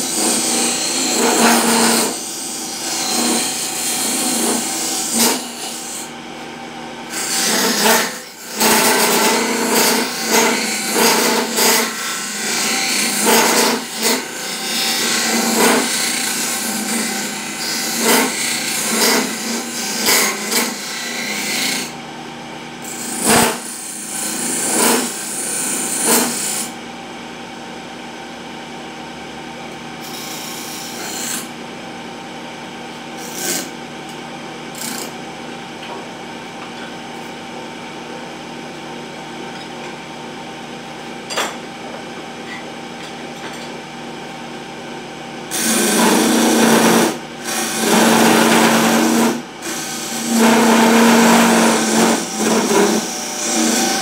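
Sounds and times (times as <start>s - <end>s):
wood lathe motor hum: 0.0s - 6.1s, 7.1s - 22.0s, 45.5s - 54.0s.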